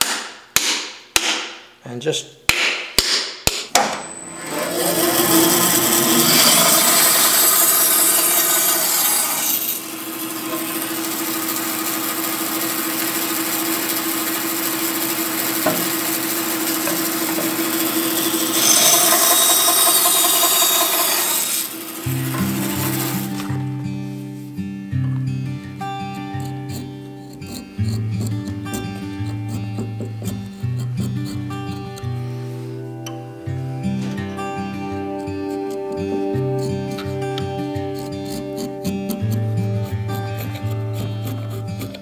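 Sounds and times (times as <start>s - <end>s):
bandsaw cutting wood: 4.1s - 23.8s, 26.4s - 32.4s, 35.2s - 42.0s
bandsaw running free: 4.2s - 23.8s.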